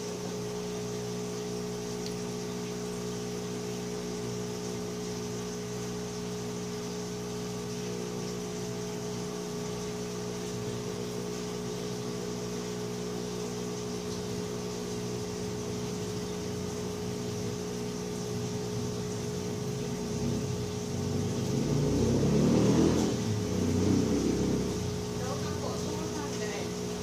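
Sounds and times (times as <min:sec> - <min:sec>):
hot air blower whirring: 0:00.0 - 0:00.4.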